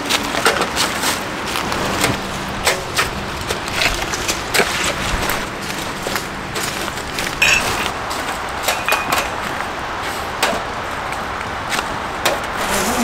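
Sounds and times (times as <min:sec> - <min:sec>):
steady rain hiss: 0:00.9 - 0:13.0.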